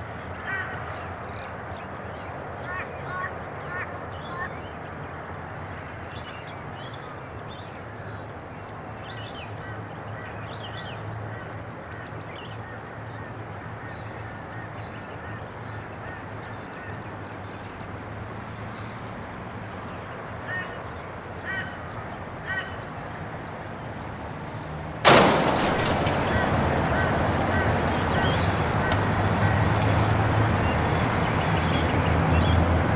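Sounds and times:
bird calls: 25.1 - 32.9
fishing reel drag rasping: 26.2 - 32.9.

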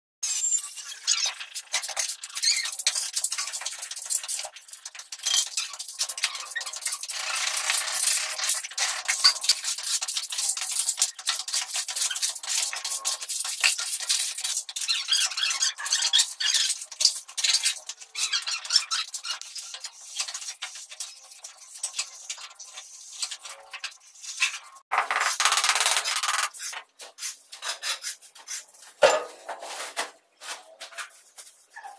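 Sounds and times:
trowel scraping cement mortar: 26.0 - 28.9.

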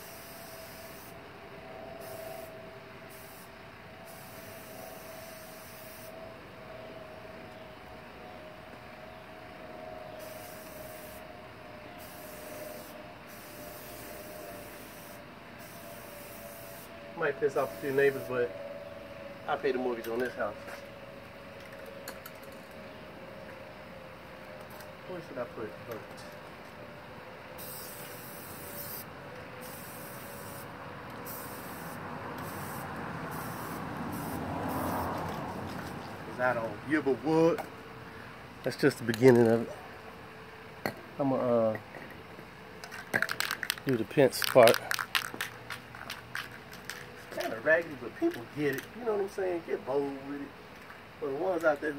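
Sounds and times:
spray paint can spraying: 0.0 - 1.2, 3.1 - 3.5, 4.1 - 6.1, 10.2 - 11.2, 12.0 - 16.9, 27.6 - 35.9, 42.9 - 47.6.

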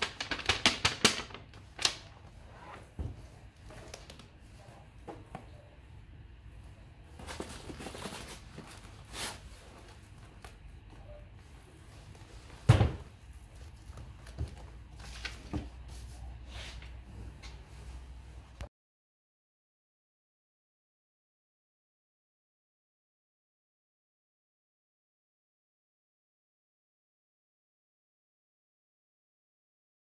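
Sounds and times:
foil and paper rustling: 0.0 - 2.1, 7.2 - 10.5.

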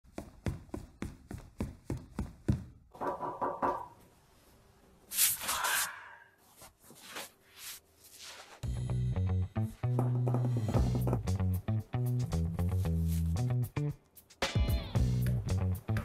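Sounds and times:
sheet scraping across table: 6.6 - 8.6.

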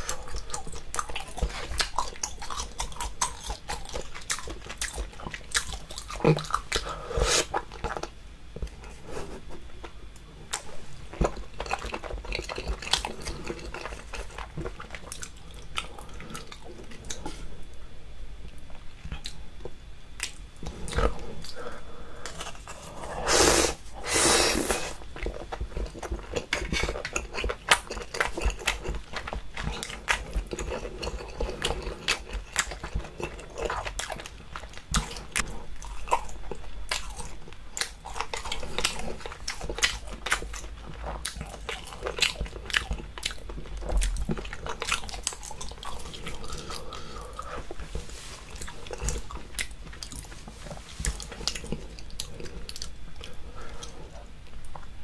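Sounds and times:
wet chewing clicks and squelches: 0.0 - 6.9, 25.1 - 47.8, 48.5 - 55.0.

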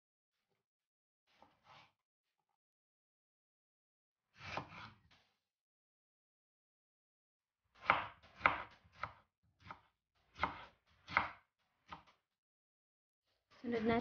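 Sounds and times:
knife cutting tomato on plastic board: 1.3 - 2.0, 4.3 - 5.2, 7.7 - 12.2.

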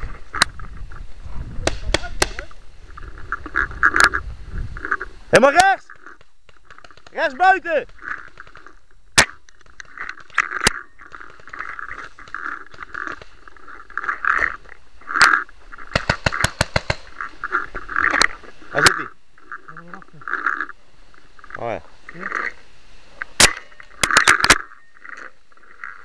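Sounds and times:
paintball marker pops: 1.6 - 2.5, 15.9 - 17.1.

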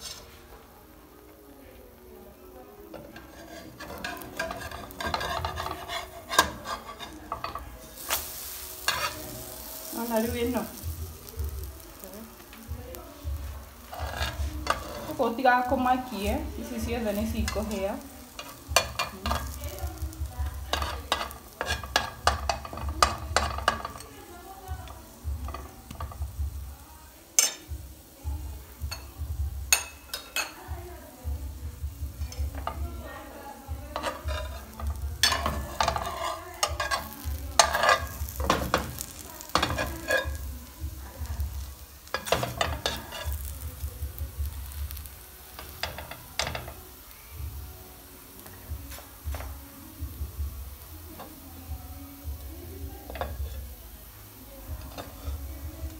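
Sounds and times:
batter sizzling: 0.0 - 55.9
metal spatula scraping pan: 2.9 - 10.8, 13.8 - 16.1, 20.7 - 24.1, 33.9 - 40.4, 42.0 - 43.6.

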